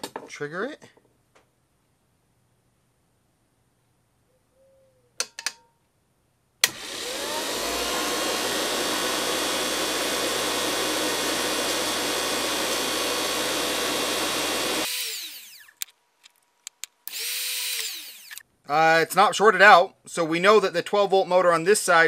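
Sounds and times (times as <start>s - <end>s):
dynamotor whirring: 6.6s - 15.9s, 17.0s - 18.4s.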